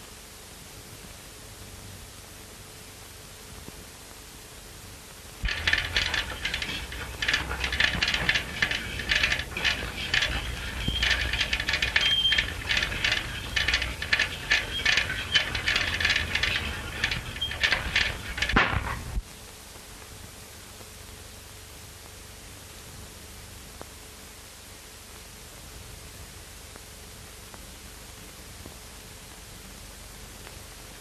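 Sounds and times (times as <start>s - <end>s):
metallic ladder ratcheting: 5.4s - 19.2s.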